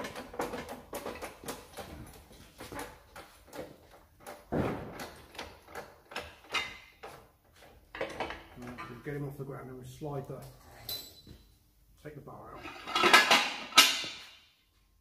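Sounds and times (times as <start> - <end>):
chains and metal knocks: 10.8 - 11.4.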